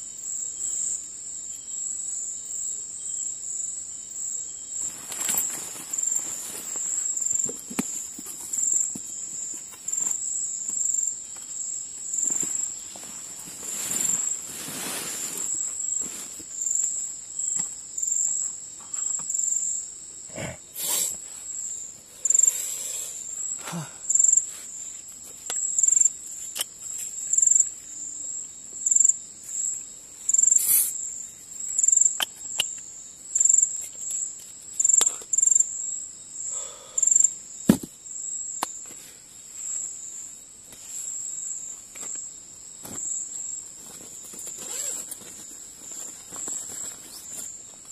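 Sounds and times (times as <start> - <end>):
crickets chirping: 0.0 - 47.9
gear clicks and rustles: 43.8 - 47.6.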